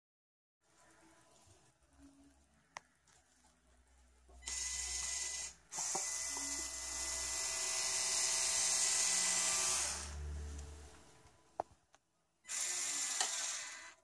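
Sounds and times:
toy electric motors whirring: 4.4 - 10.2, 12.5 - 14.0.

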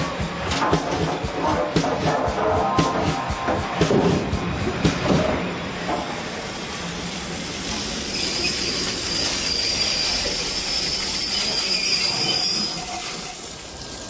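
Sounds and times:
train wheels rumbling on rails: 0.0 - 14.0
wheels squealing on rail: 7.4 - 14.0.

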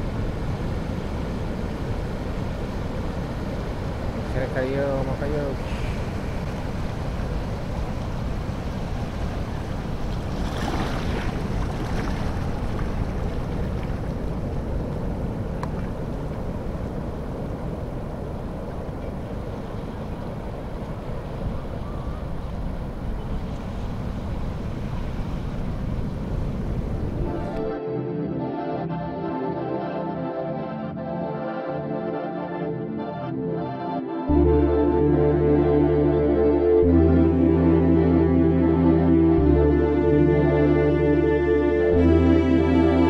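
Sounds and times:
surf breaking on reef: 0.0 - 27.7
seawater washing over rocks: 9.7 - 16.4.

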